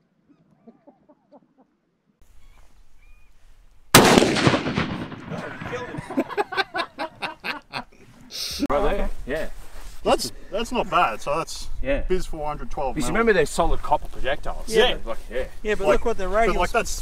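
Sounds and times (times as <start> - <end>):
loud rifle shot: 3.9 - 5.8.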